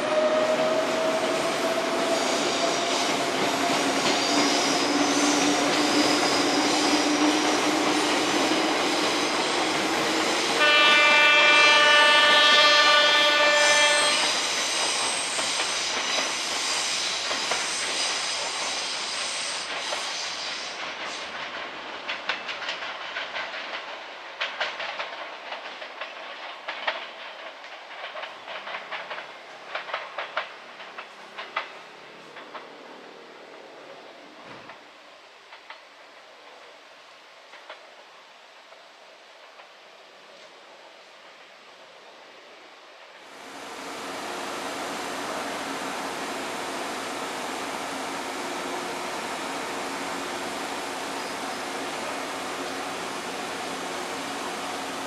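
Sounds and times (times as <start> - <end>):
electric train moving off: 0.0 - 20.3
train horn: 10.4 - 14.5
wheels clicking over rail joints: 20.9 - 32.9.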